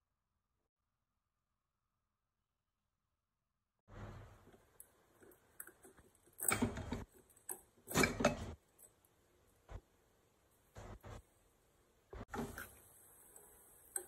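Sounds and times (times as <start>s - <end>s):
pressure cooker lid scraping: 12.3s - 14.0s.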